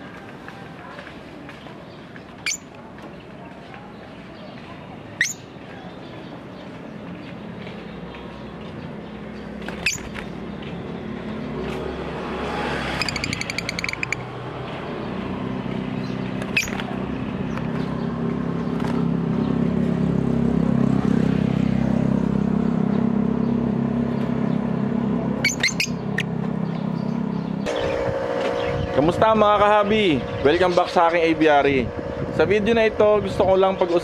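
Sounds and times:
vehicle engine humming: 0.0s - 34.0s
lovebirds chirping: 1.6s - 20.4s, 22.5s - 29.2s
bird chattering call: 2.4s - 2.7s, 5.2s - 5.5s, 9.7s - 10.2s, 13.0s - 14.3s, 16.4s - 16.9s, 25.4s - 26.8s.

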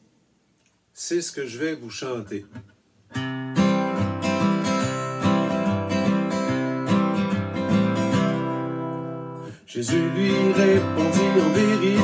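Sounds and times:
acoustic guitar strumming: 2.5s - 12.0s.

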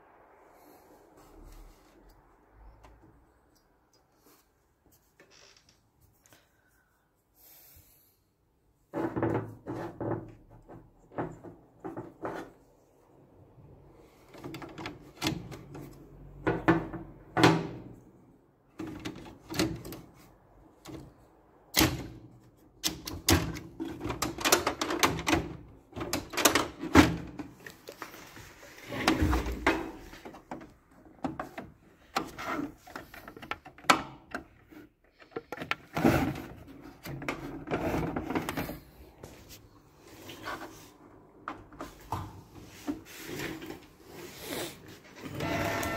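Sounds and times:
printer plastic clicks and rattles: 22.8s - 27.8s.

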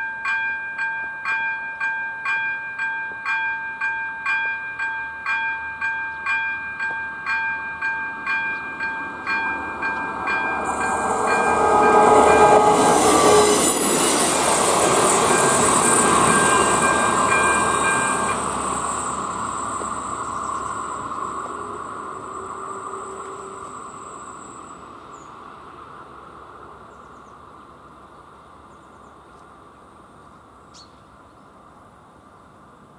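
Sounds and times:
level crossing warning bell ringing: 0.0s - 24.8s
passenger train passing: 3.1s - 32.9s.

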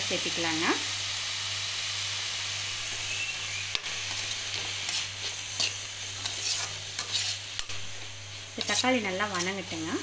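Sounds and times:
vegetables sizzling in oil: 0.0s - 10.0s
spoon scraping and clicking on pan: 3.8s - 7.7s.

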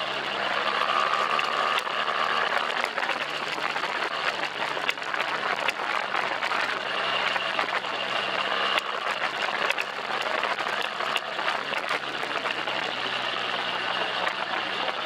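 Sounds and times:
motorcycle engine running: 0.0s - 15.0s
sharp clicks and rattles: 0.0s - 15.0s.

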